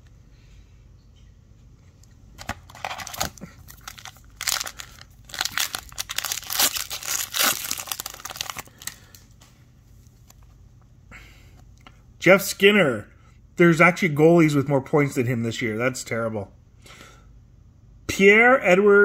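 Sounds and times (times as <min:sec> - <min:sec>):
foil wrapper crinkling and tearing: 0:02.4 - 0:09.2.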